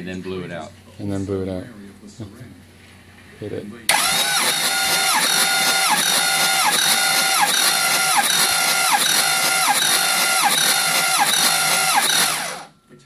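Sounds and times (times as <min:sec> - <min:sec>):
starter motor cranking engine: 0:03.9 - 0:12.7.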